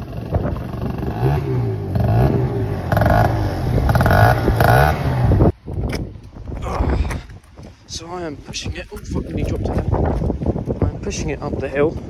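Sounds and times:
scooter engine revving: 0:00.0 - 0:05.5.

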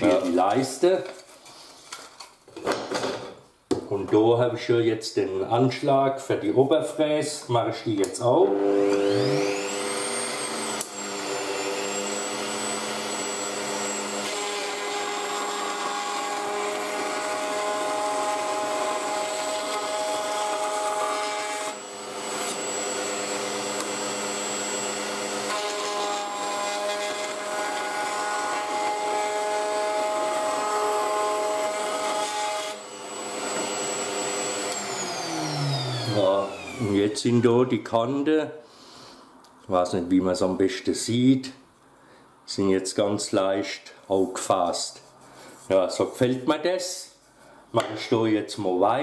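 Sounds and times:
wood router whining: 0:08.3 - 0:37.9.

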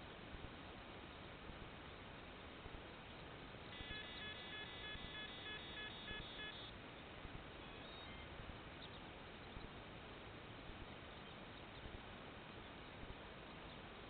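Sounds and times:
faint steady hiss: 0:00.0 - 0:14.0
rapid high electronic beeps: 0:03.8 - 0:06.7, 0:07.6 - 0:08.3.

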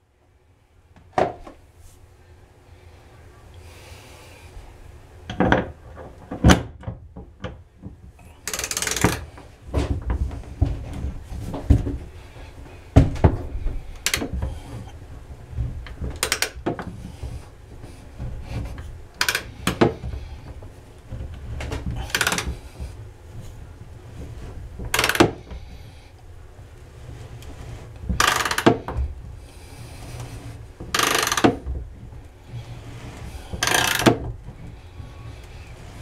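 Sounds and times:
ratchet rasping: 0:08.4 - 0:09.2, 0:16.2 - 0:16.6, 0:19.2 - 0:19.8, 0:22.0 - 0:22.5, 0:25.0 - 0:25.3, 0:28.2 - 0:28.8, 0:30.9 - 0:31.6, 0:33.6 - 0:34.2
ratchet metallic clicks: 0:08.5 - 0:09.2, 0:31.0 - 0:31.5.

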